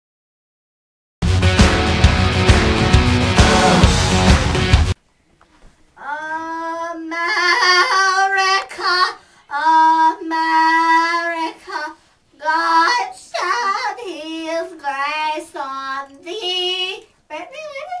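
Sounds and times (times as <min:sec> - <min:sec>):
rock music: 0:01.2 - 0:05.0.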